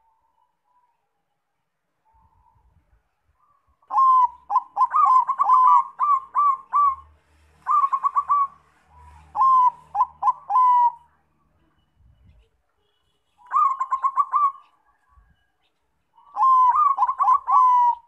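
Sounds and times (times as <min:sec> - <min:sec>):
dove cooing: 0:03.9 - 0:11.1, 0:13.4 - 0:15.0, 0:16.2 - 0:18.0.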